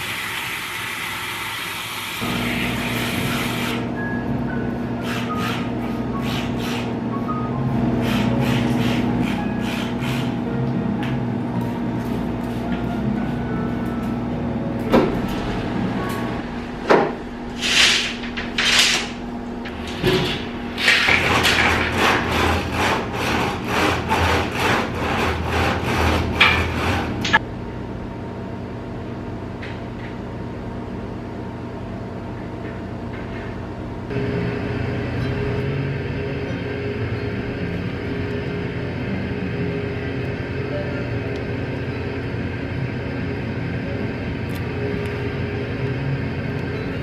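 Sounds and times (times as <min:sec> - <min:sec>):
wooden blind slats clattering: 0:17.7 - 0:19.2.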